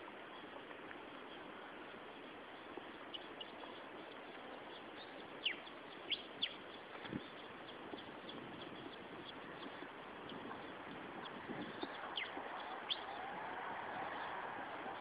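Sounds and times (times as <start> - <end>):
small birds chirping: 0.0 - 15.0
steady hiss: 0.0 - 15.0.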